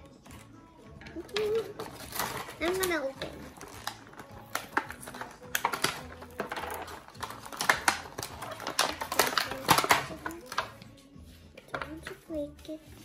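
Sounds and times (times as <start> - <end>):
packet wrapping crinkling: 1.2 - 10.9.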